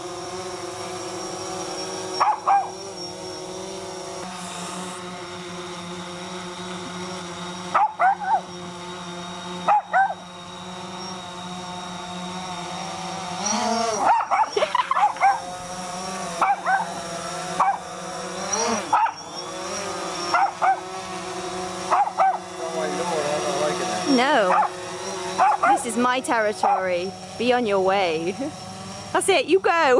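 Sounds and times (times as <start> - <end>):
drone propellers humming: 0.0 - 29.9
dog barking and yipping: 2.2 - 2.8, 7.7 - 8.5, 9.7 - 10.2, 14.0 - 15.5, 16.4 - 17.0, 17.6 - 17.9, 18.5 - 19.5, 20.2 - 20.9, 21.9 - 22.4, 24.5 - 24.8, 25.4 - 25.9, 26.6 - 27.0.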